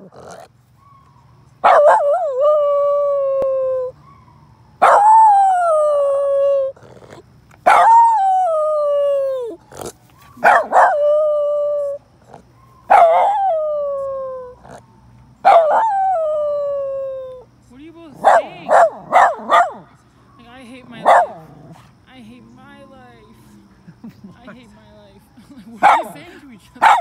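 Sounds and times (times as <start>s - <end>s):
dog howling: 0.0s - 17.4s.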